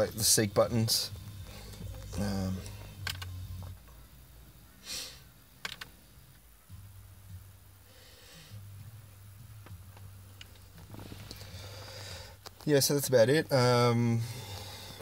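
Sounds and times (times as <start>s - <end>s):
person breathing: 4.8s - 5.3s, 7.8s - 8.7s, 11.2s - 12.4s, 14.2s - 15.0s.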